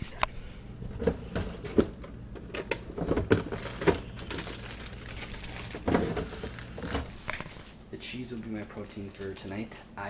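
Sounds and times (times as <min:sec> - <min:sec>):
plastic bags rustling: 0:02.9 - 0:09.7
plastic containers knocking: 0:05.7 - 0:07.1.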